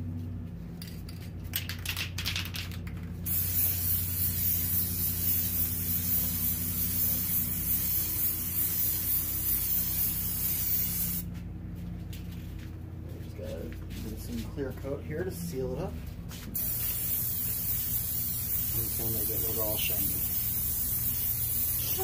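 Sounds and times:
spray paint can hissing: 0:01.5 - 0:11.3, 0:16.6 - 0:22.0.

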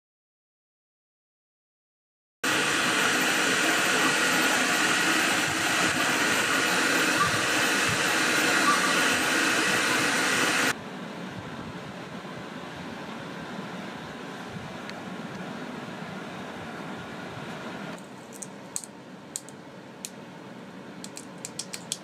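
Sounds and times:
printer fans whirring: 0:02.4 - 0:22.0
steady whining tones: 0:02.5 - 0:10.8.

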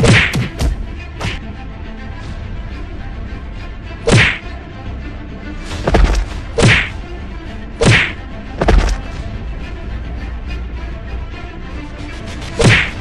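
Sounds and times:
punch sound effects: 0:00.0 - 0:00.5, 0:04.1 - 0:04.4, 0:05.9 - 0:06.9, 0:07.8 - 0:09.0
steady low background: 0:00.0 - 0:13.0.

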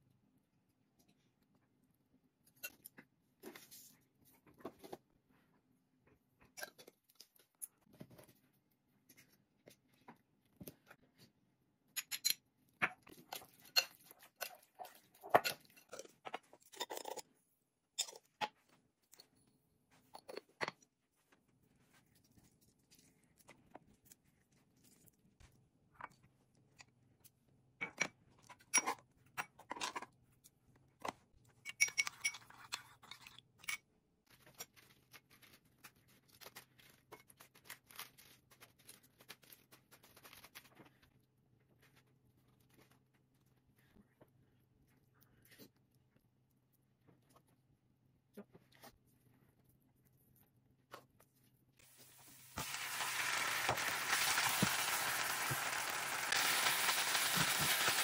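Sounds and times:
spoon stirring in ceramic bowl: 0:12.0 - 0:17.3, 0:31.6 - 0:33.9
metal spoon in glass bowl: 0:13.3 - 0:14.7, 0:31.6 - 0:32.6.

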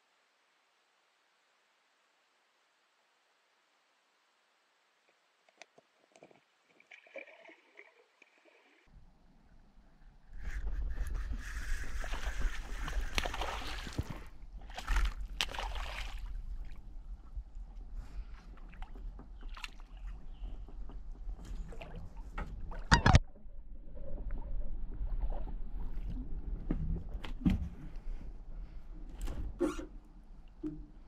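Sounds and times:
knocks and splashes: 0:12.0 - 0:16.8.

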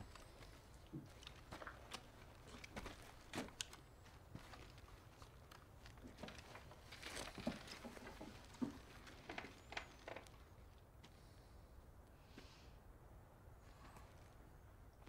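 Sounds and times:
small knocks and rustles: 0:00.0 - 0:10.8.

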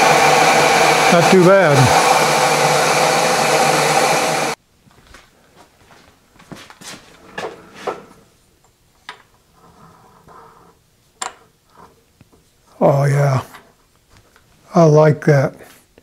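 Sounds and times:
loud rushing machine noise: 0:00.0 - 0:04.6.

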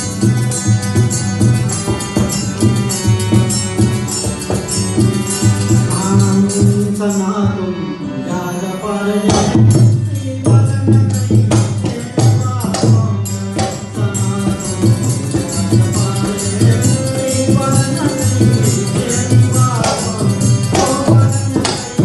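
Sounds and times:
hand percussion beat: 0:00.0 - 0:07.3, 0:09.3 - 0:22.0
harmonium: 0:00.0 - 0:22.0
man singing: 0:05.4 - 0:22.0.

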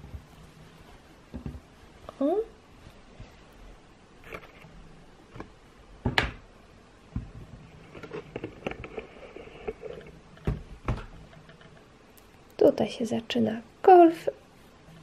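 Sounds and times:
fabric handling noise: 0:00.0 - 0:06.0.

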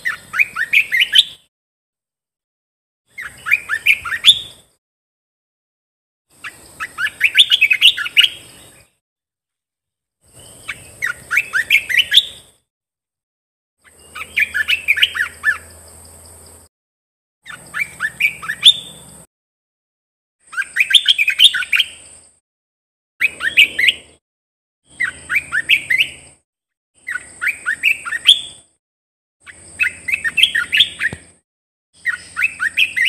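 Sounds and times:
bird warbling song: 0:00.0 - 0:01.5, 0:03.1 - 0:04.7, 0:06.3 - 0:09.0, 0:10.2 - 0:12.6, 0:13.8 - 0:16.1, 0:17.4 - 0:19.2, 0:20.4 - 0:22.1, 0:23.2 - 0:24.2, 0:24.9 - 0:26.4, 0:27.0 - 0:28.7, 0:29.4 - 0:31.4, 0:32.0 - 0:33.0.

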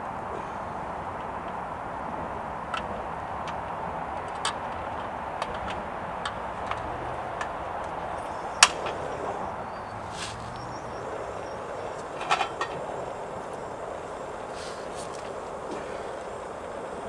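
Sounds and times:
cookware and utensils clicking: 0:12.0 - 0:13.0.

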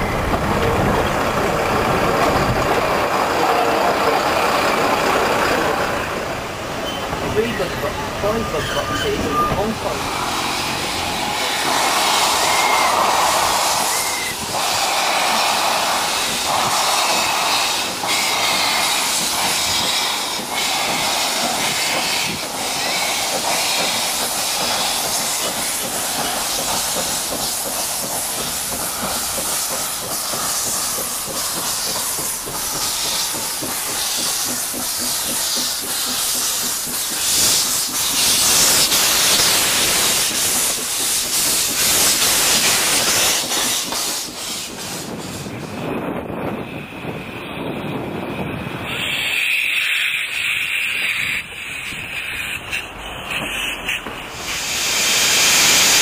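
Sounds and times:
steam locomotive exhaust chuffs: 0:00.0 - 0:56.0
steam hissing: 0:01.2 - 0:46.8, 0:48.7 - 0:56.0.

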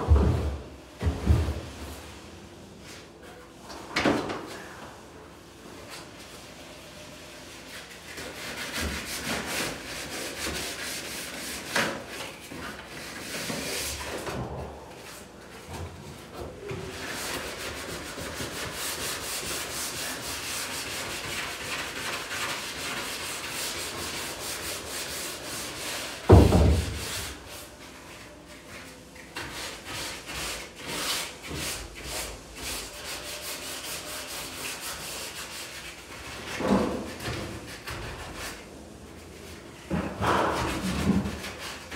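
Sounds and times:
hand sanding wood: 0:07.5 - 0:14.2, 0:16.9 - 0:27.6, 0:28.3 - 0:38.6.

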